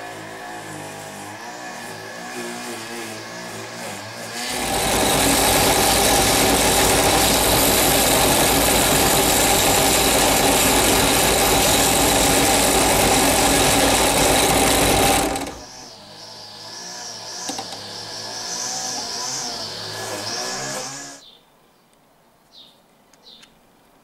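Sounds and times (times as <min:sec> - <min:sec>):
drill press motor running: 0:04.4 - 0:15.7.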